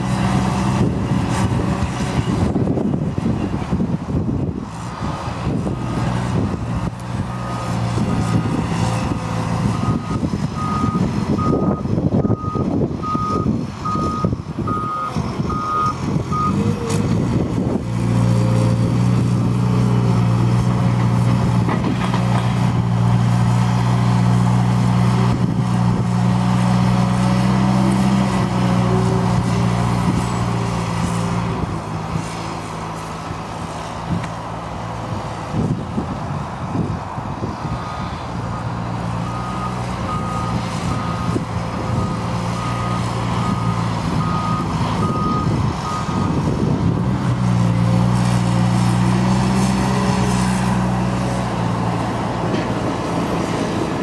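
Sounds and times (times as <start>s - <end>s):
wheel loader diesel engine: 0.0s - 54.0s
reversing alarm beeping: 9.7s - 16.6s, 39.2s - 46.4s.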